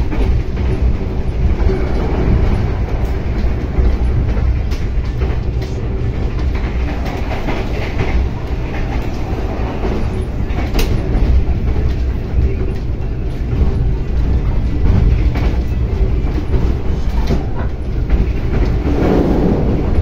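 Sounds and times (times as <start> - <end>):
train carriage rumbling on rails: 0.0 - 20.0.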